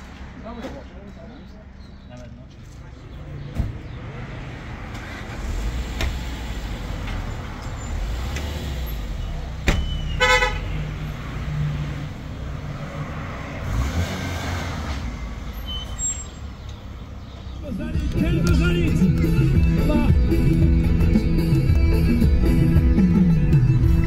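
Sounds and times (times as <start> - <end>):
vehicle engine rumbling: 0.0 - 24.0.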